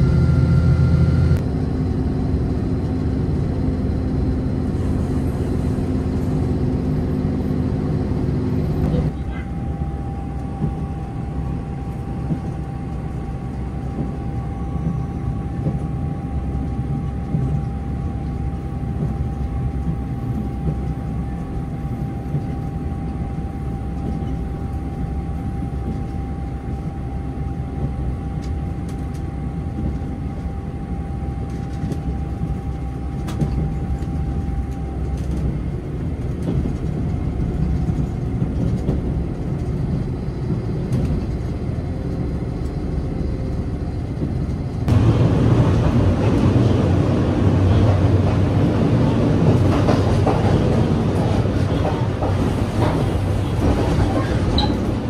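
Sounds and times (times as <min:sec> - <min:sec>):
train wheels rumbling on track: 0:00.0 - 0:55.0.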